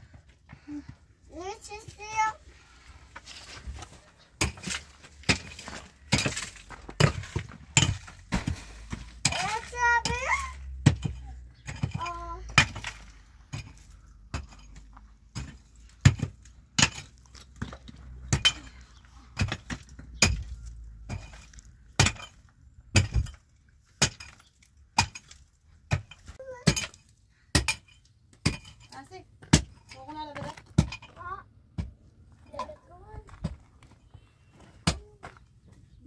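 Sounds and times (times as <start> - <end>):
digging tool striking stony earth: 3.2 - 31.1.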